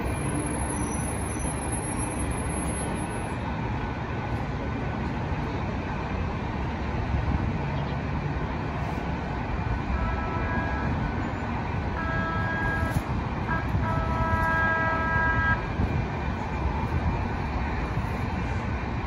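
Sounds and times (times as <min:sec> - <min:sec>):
low rumble of traffic: 0:00.0 - 0:19.0
distant trolley horn: 0:09.8 - 0:15.7.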